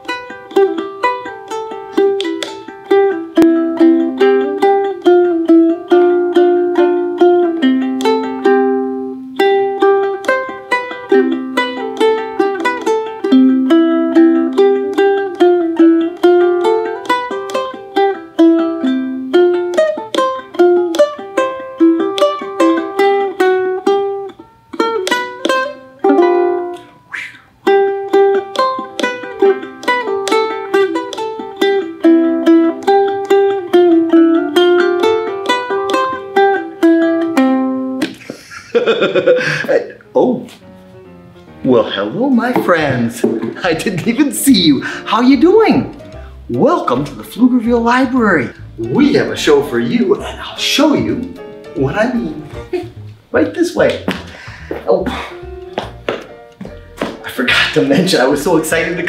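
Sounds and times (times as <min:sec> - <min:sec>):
ukulele plucked: 0:00.0 - 0:59.0.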